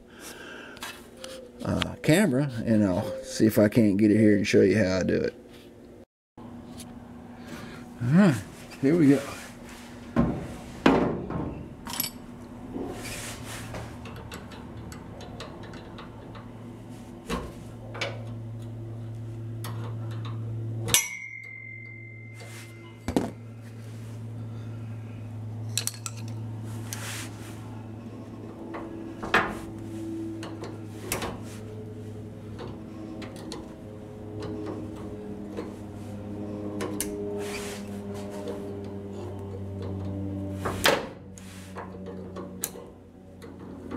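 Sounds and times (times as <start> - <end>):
steady low hum: 0.0 - 43.9
tools and metal parts clinking: 11.8 - 12.3, 25.6 - 26.4.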